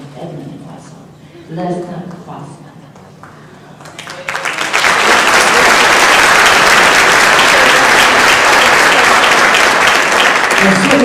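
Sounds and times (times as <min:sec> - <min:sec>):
audience applauding: 0:03.2 - 0:11.0.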